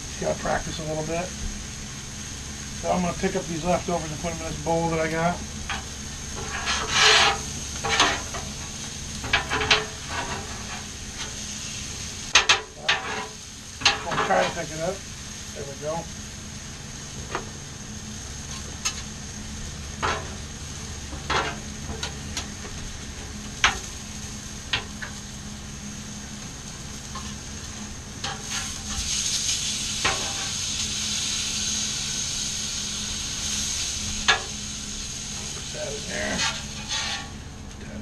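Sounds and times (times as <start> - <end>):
food sizzling on hot plate: 0.0 - 37.6
metal spatulas scraping griddle: 6.3 - 8.4, 9.3 - 11.4, 12.4 - 14.7, 28.2 - 29.3, 30.0 - 30.6, 36.1 - 37.4.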